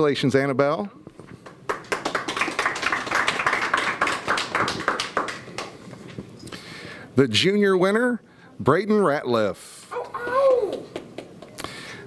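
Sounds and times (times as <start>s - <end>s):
small group clapping: 1.4s - 5.8s, 10.0s - 11.6s.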